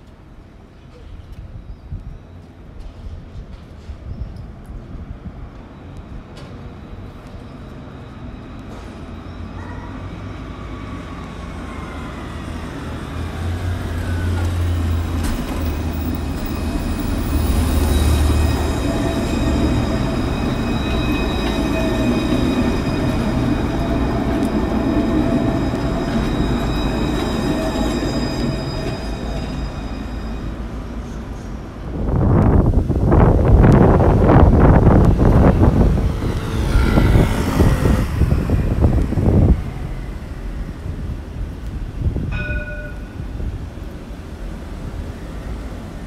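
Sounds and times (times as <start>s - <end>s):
tram wheels rumbling on rails: 0.0s - 46.0s
tram motor whine: 6.4s - 46.0s
high-pitched ringing tones: 17.2s - 31.2s.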